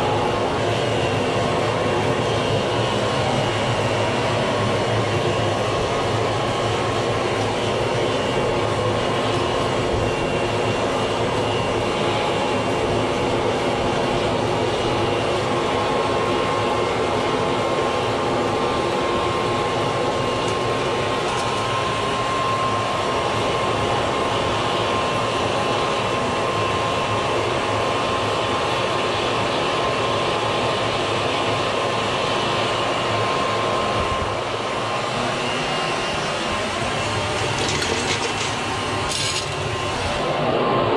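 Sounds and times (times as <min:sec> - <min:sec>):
furnace fire roaring: 0:00.0 - 0:24.4, 0:33.8 - 0:40.7
thin steady whine: 0:00.0 - 0:40.9.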